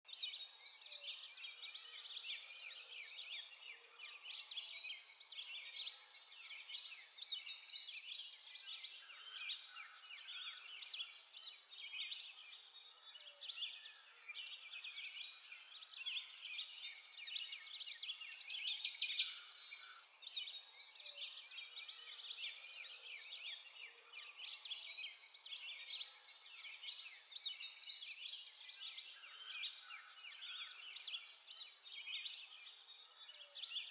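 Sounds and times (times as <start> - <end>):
birds chirping and singing: 0.1 - 33.9.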